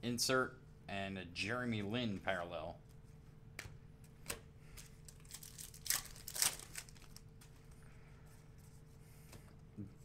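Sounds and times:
plastic wrapper tearing and crinkling: 4.9s - 7.5s.

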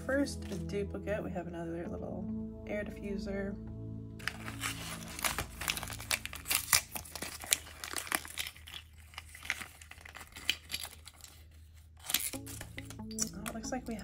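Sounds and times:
wrapper tearing and crinkling: 4.2s - 12.7s.

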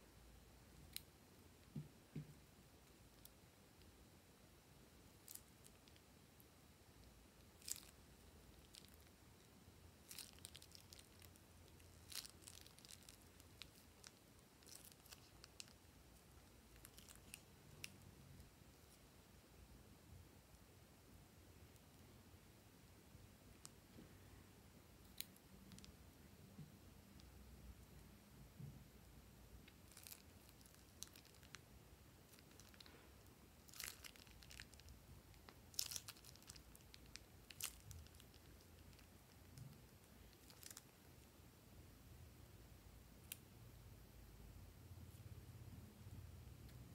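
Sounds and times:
plastic piping bag crinkling: 5.2s - 6.0s, 7.4s - 9.1s, 10.0s - 18.1s, 29.7s - 31.6s, 32.3s - 41.1s.

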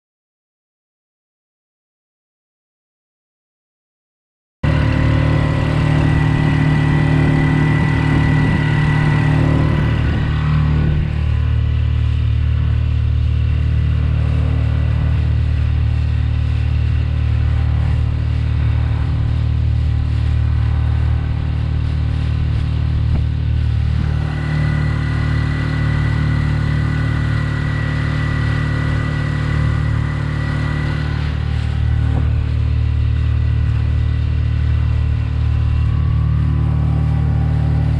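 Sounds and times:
outboard motor running: 4.6s - 37.9s.

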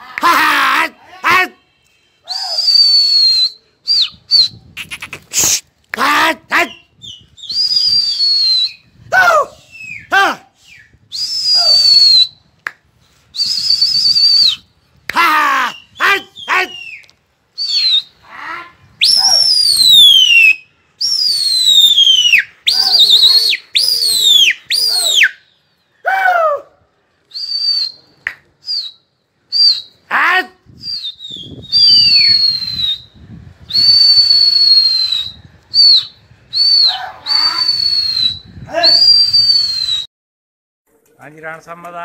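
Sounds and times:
person shouting calls: 0.0s - 2.8s, 9.1s - 10.6s, 15.1s - 16.9s, 18.2s - 19.7s, 22.7s - 25.3s, 30.1s - 30.6s, 36.8s - 37.8s, 38.6s - 39.2s
person whistling loudly: 2.2s - 4.7s, 6.6s - 9.0s, 9.6s - 12.4s, 13.3s - 14.7s, 15.3s - 18.2s, 19.0s - 25.4s, 27.3s - 30.0s, 30.8s - 40.1s.

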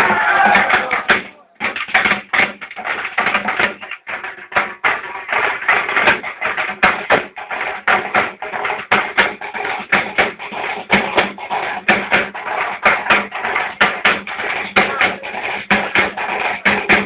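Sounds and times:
loud crowd din: 0.0s - 1.6s
sharp cracks and knocks: 0.0s - 17.0s.

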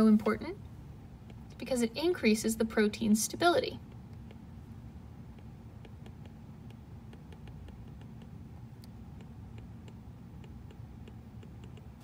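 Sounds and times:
steady low hum: 0.0s - 12.0s
stylus tapping on glass screen: 5.3s - 8.4s, 9.1s - 12.0s.

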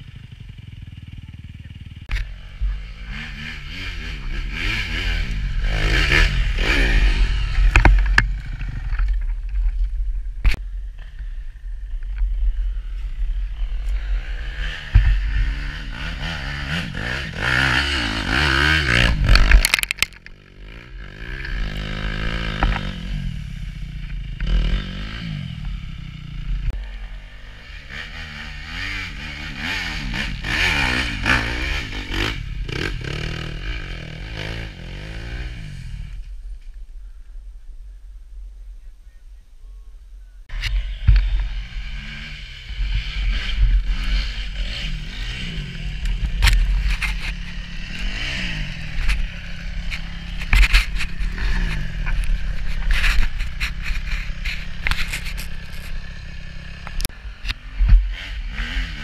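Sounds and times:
dirt bikes revving: 0.0s - 36.4s, 40.2s - 59.0s
knocks and scrapes on camera: 49.8s - 56.0s.

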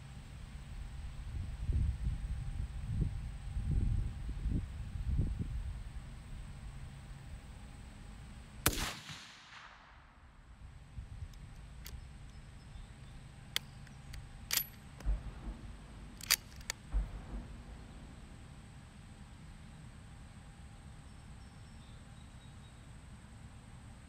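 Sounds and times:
rifle shot echoing: 8.6s - 10.5s, 14.5s - 18.5s
rifle bolt clicks: 13.6s - 15.2s, 16.2s - 16.8s.

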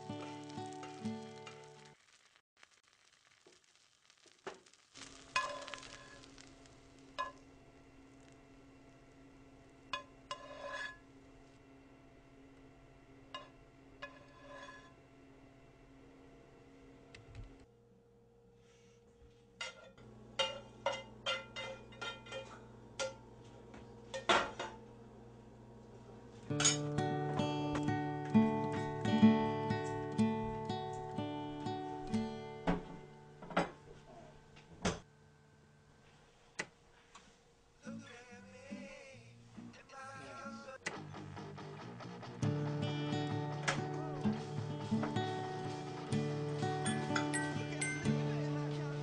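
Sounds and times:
eggs sizzling in a pan: 0.0s - 11.6s, 43.2s - 48.1s
spatula clinking on pan and plate: 19.6s - 23.2s.

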